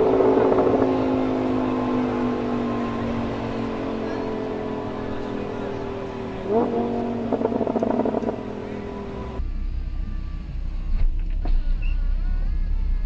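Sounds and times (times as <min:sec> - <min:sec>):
car engine revving: 0:00.0 - 0:09.4
engine idling low rumble: 0:00.0 - 0:13.0.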